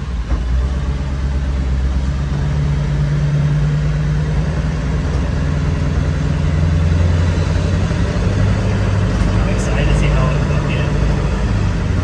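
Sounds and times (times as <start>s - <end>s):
road noise: 0.0s - 12.0s
van engine running: 0.0s - 12.0s.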